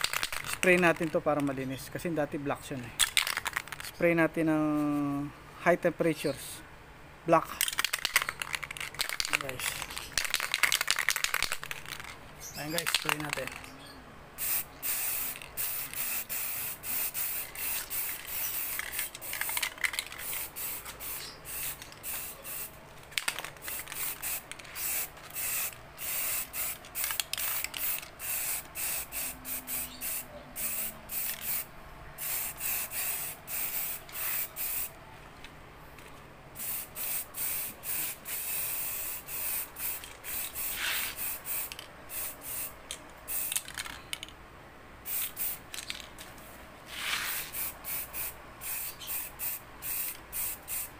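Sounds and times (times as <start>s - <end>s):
spray paint hissing in bursts: 0.0s - 1.5s, 14.4s - 34.9s, 36.6s - 43.9s, 45.0s - 45.9s, 46.8s - 50.9s.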